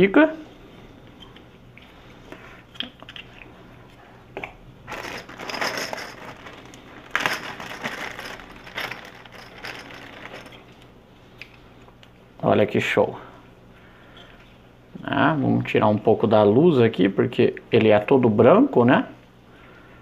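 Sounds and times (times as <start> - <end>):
plastic bags crinkling: 4.8 - 10.8.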